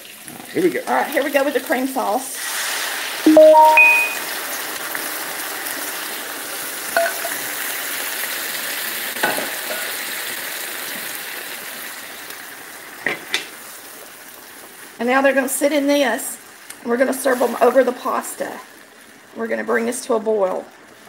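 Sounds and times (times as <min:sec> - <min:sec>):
sauce sizzling in a skillet: 0:00.0 - 0:03.3, 0:04.2 - 0:21.0.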